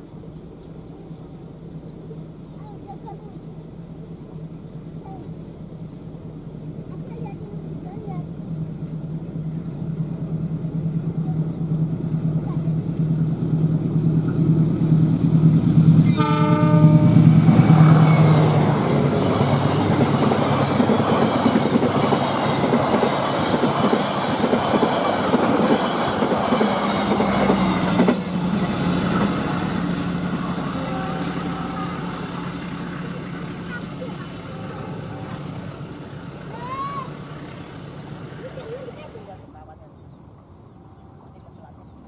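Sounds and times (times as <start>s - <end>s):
diesel locomotive engine running: 0.0s - 40.1s
train wheels on rails: 3.5s - 39.3s
locomotive horn: 16.0s - 18.3s.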